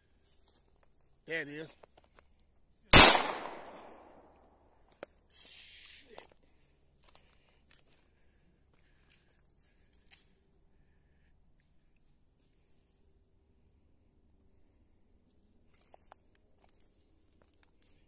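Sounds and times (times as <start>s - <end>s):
gunshot ringing: 3.0s - 4.2s.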